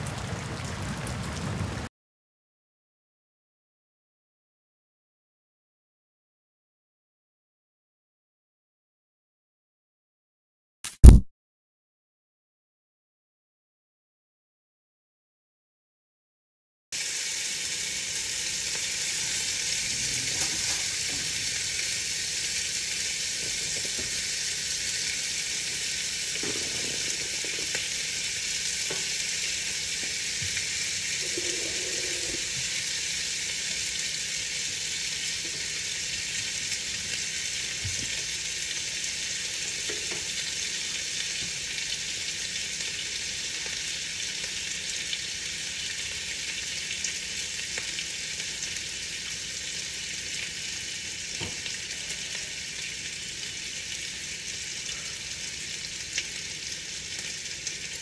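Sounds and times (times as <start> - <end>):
rain on a window: 0.0 - 1.9, 17.9 - 34.1.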